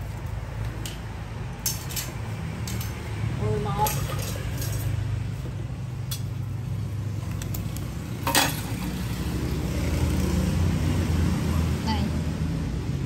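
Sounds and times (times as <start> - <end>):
road traffic rumble: 0.0 - 13.0
metal tools clinking: 0.6 - 5.0, 8.2 - 8.9.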